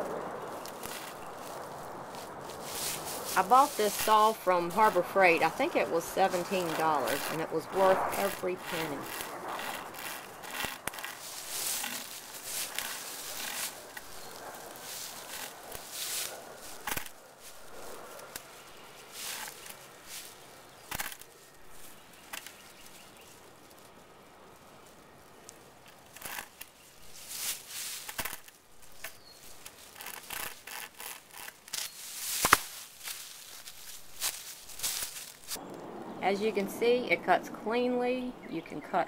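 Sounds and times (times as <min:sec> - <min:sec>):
sharp crack of wood: 0:00.0 - 0:04.2, 0:06.6 - 0:22.9, 0:25.8 - 0:35.8
chainsaw chain sawing through branch: 0:00.6 - 0:22.8, 0:25.5 - 0:35.6.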